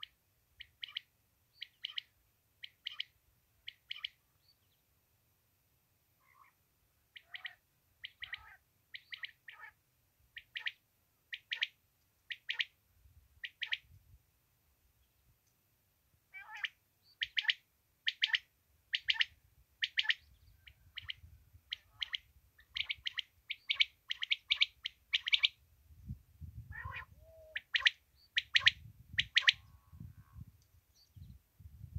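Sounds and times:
lower rough quail call: 0.0s - 3.1s, 6.2s - 9.8s, 16.3s - 25.6s, 26.6s - 30.5s
quail calling: 0.0s - 3.1s, 3.7s - 4.2s, 6.2s - 9.8s, 10.4s - 11.7s, 12.3s - 12.7s, 13.4s - 13.8s, 16.3s - 25.6s, 26.7s - 29.7s.

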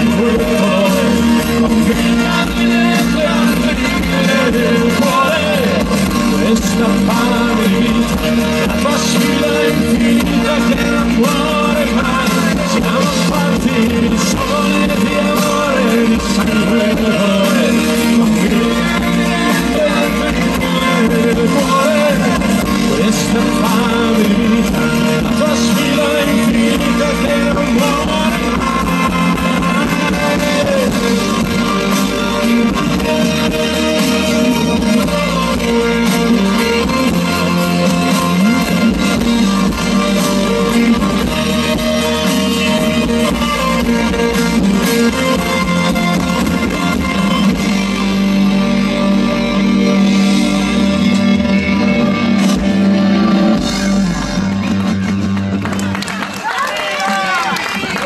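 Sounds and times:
rock band playing live: 0.0s - 58.0s.

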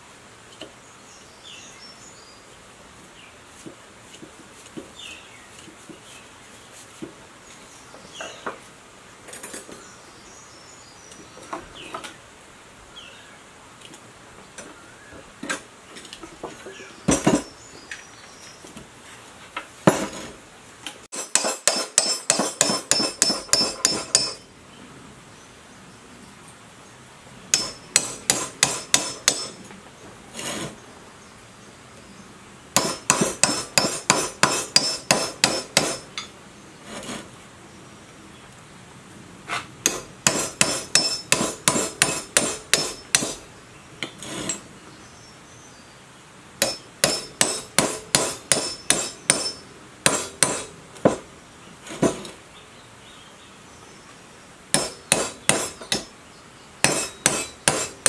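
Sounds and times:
hammer striking steel rod: 21.1s - 24.4s, 27.5s - 29.6s, 32.8s - 36.3s, 39.8s - 43.4s, 46.6s - 51.2s, 54.8s - 56.1s, 56.8s - 58.0s.

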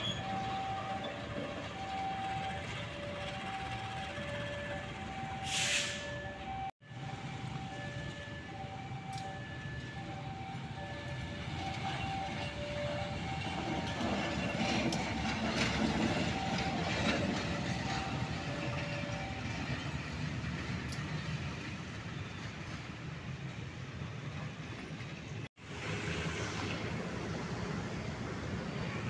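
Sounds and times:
locomotive engine running: 0.0s - 5.5s, 6.1s - 25.9s
wheels rolling over rails: 11.6s - 21.8s.

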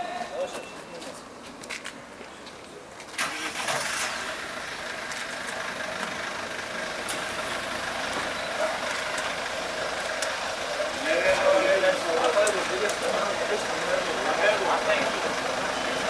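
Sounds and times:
vehicle engine idling: 3.2s - 16.0s.

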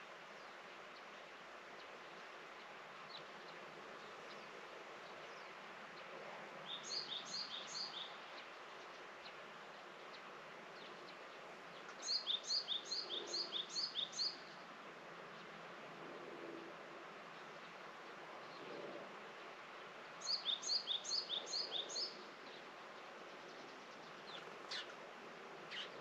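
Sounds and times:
steady outdoor hiss: 0.0s - 26.0s
songbird singing: 3.1s - 14.6s, 20.2s - 25.0s, 25.6s - 26.0s.

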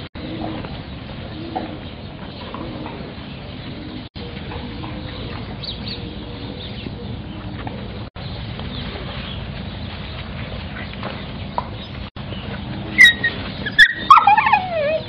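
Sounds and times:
puppies whimpering: 13.0s - 15.0s.

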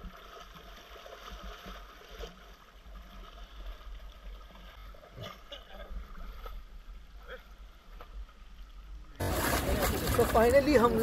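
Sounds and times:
rushing river water: 0.0s - 7.9s, 9.1s - 11.0s
short knocks or splashes: 9.2s - 11.0s.

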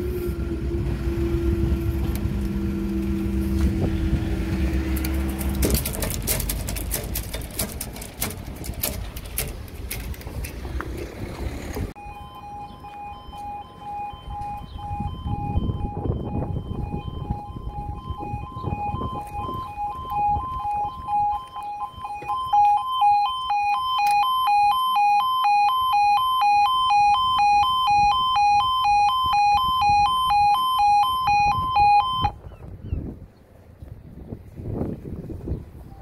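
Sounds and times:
two-tone electronic crossing alarm: 12.0s - 32.4s.

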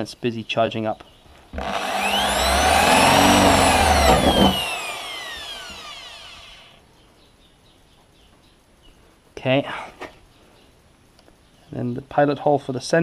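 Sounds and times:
drill motor winding down: 1.6s - 6.8s
electric drill boring through metal: 1.6s - 6.8s.

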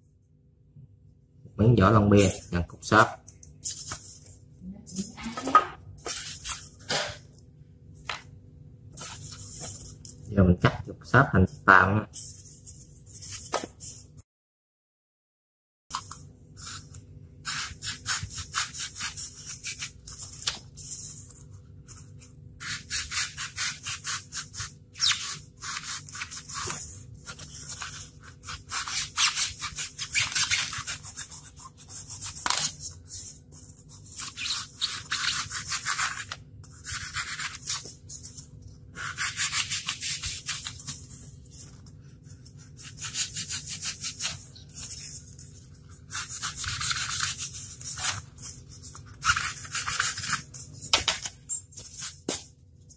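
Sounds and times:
knife sawing through foam: 22.6s - 32.4s, 39.0s - 40.8s, 42.6s - 45.0s.

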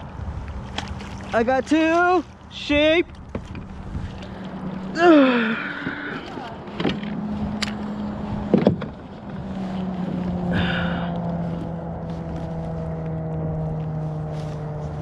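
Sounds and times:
motor engine drone: 3.1s - 15.0s.

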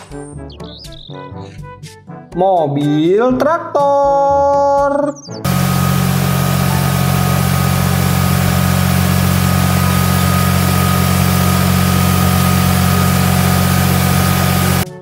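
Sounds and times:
tractor diesel engine running: 5.5s - 14.9s.

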